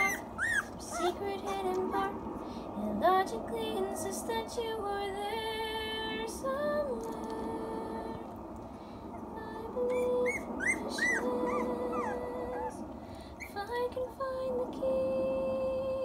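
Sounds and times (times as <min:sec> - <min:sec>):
puppy whimpering: 0:00.0 - 0:01.6, 0:09.9 - 0:12.8
woman singing slow melody: 0:00.0 - 0:08.5, 0:09.2 - 0:16.0.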